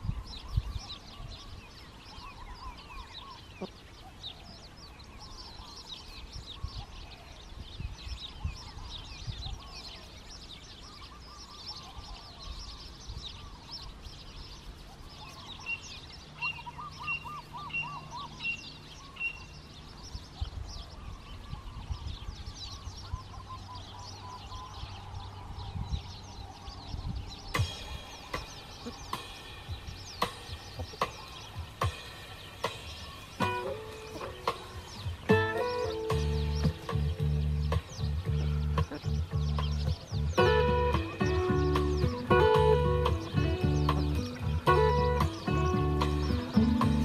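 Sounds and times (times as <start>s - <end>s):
wild birds chirping and singing: 0.0s - 47.0s
low thumps: 27.6s - 47.0s.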